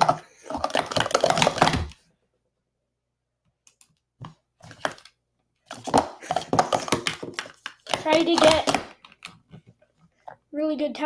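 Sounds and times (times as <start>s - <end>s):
plastic cups clattering: 0.0s - 2.0s, 4.2s - 10.4s.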